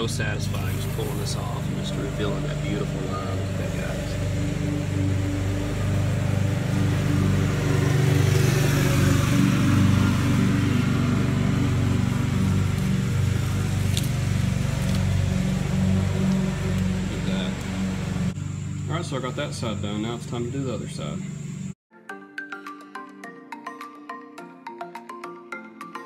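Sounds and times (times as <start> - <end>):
loud low hum: 0.0 - 21.8
masking tape peeling: 12.4 - 17.0.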